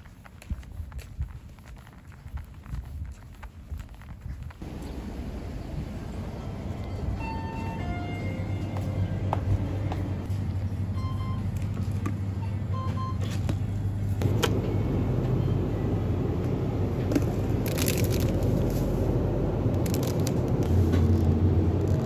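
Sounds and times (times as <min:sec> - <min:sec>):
refrigerator hum: 0:04.6 - 0:22.0
plastic wrapping crinkling: 0:17.6 - 0:19.0, 0:19.7 - 0:22.0.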